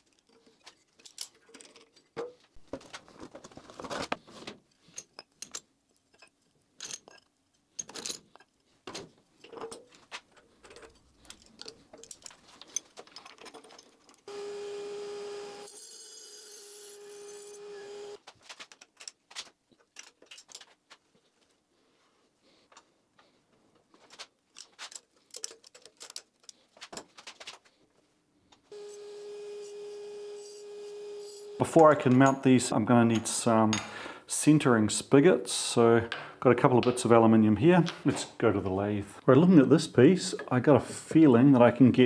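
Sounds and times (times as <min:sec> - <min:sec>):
metal tools clinking: 0:00.0 - 0:02.2, 0:04.8 - 0:08.7, 0:09.4 - 0:14.3, 0:19.8 - 0:20.8, 0:24.5 - 0:27.1
steady machine whine: 0:14.3 - 0:15.7, 0:28.7 - 0:31.6.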